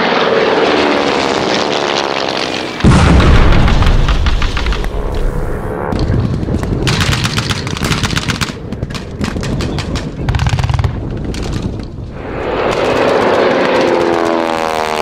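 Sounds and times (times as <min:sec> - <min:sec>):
propeller aircraft engine: 0:00.0 - 0:15.0
low rumble: 0:02.8 - 0:06.8, 0:10.9 - 0:13.8
rapid gunfire: 0:06.2 - 0:11.1.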